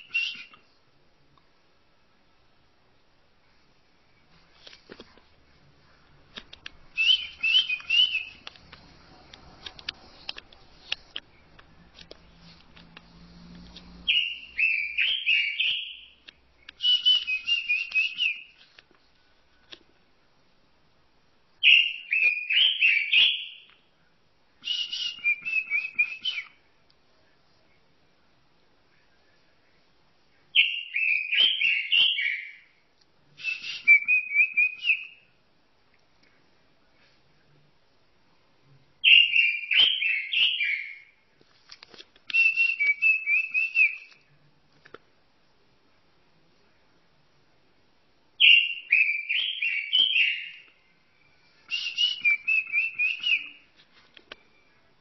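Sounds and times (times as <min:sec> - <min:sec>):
robin singing: 0:06.9 - 0:08.5, 0:14.0 - 0:18.6, 0:21.6 - 0:23.9, 0:30.4 - 0:32.8, 0:33.4 - 0:35.4, 0:39.0 - 0:41.2, 0:42.3 - 0:44.2, 0:48.4 - 0:53.7.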